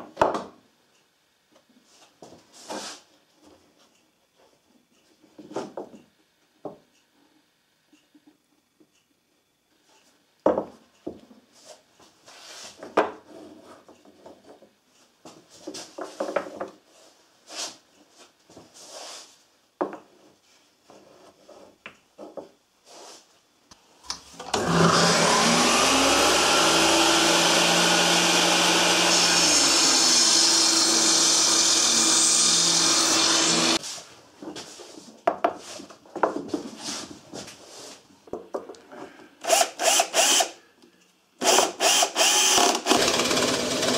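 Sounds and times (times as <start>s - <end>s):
workshop machine motor running: 24.4s - 33.8s, 41.8s - 43.9s.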